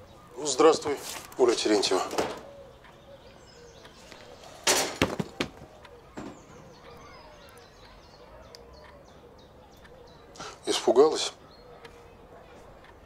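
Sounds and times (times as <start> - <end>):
faint chirping: 0.0 - 13.0
sharp knocks: 4.6 - 6.6.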